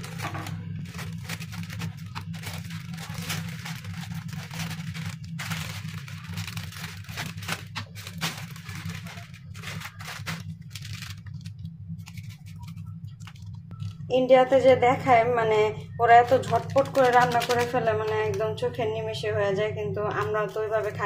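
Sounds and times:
plastic packets crinkling: 0.0s - 14.0s, 16.3s - 18.5s
steady low hum: 0.0s - 21.0s
scissors snipping plastic: 16.3s - 18.4s.

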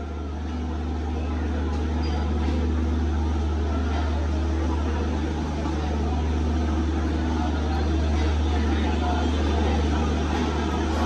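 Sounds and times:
diesel train engine idling: 0.0s - 11.0s.

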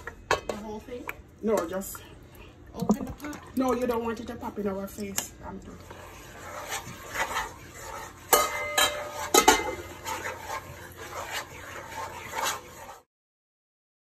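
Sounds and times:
spoon stirring porridge in pot: 4.9s - 13.1s.

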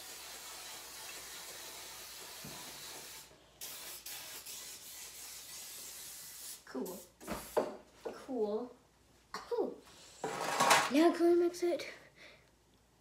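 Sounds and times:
cooking spray hissing: 0.0s - 7.8s.

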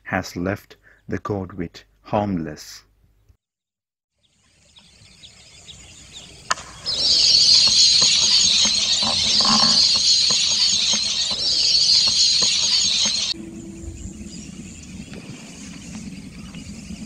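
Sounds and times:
flock of birds chattering: 4.6s - 17.0s.

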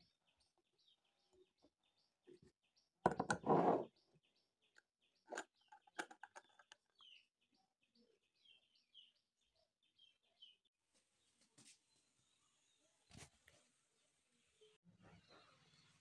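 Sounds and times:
small birds chirping: 0.0s - 16.0s
jar lid scraping rustle: 3.4s - 3.9s.

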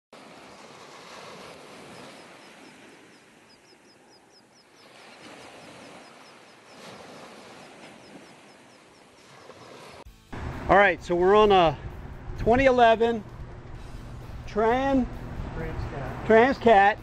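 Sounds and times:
surf washing on beach: 0.2s - 14.0s
bird chirping rapidly: 1.9s - 5.0s.

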